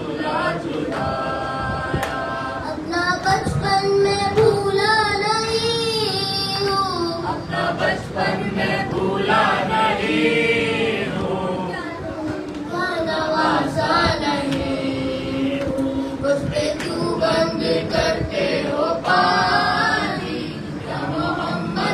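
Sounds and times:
group singing along: 0:00.0 - 0:21.9
boy singing into a microphone: 0:01.6 - 0:08.2, 0:11.6 - 0:21.9.

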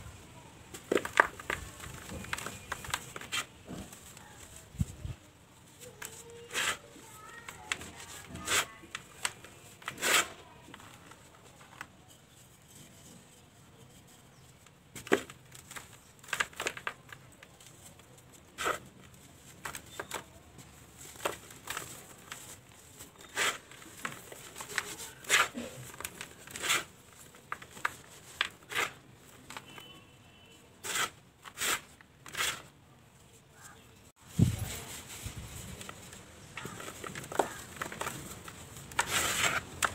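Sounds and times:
hands crumbling dry dirt: 0:00.6 - 0:04.9, 0:14.3 - 0:29.9, 0:34.4 - 0:39.9.

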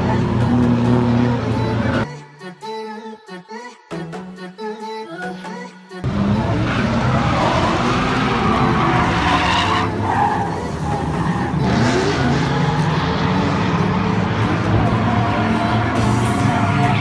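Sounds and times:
car engine revving high: 0:06.1 - 0:17.0
tyres screeching: 0:06.5 - 0:13.0.

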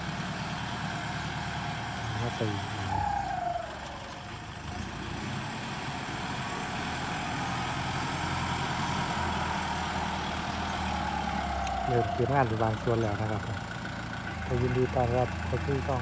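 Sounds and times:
diesel tractor engine running: 0:00.0 - 0:16.0
tractor blade pushing soil: 0:00.0 - 0:16.0.

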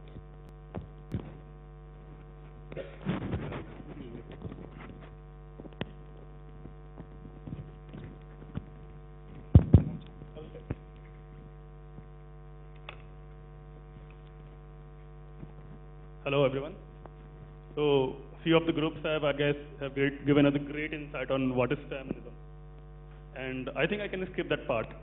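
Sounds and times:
electrical mains hum: 0:00.0 - 0:25.0
loud thumps: 0:03.0 - 0:04.7, 0:09.3 - 0:10.8.

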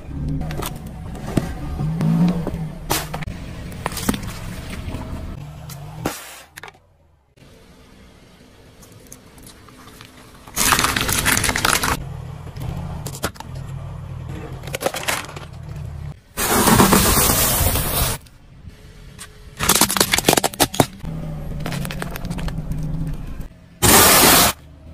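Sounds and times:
tyre crushing small objects: 0:09.4 - 0:12.0, 0:19.6 - 0:23.2
plastic crunching: 0:10.5 - 0:12.0, 0:19.6 - 0:22.9
car engine running: 0:18.5 - 0:24.9.

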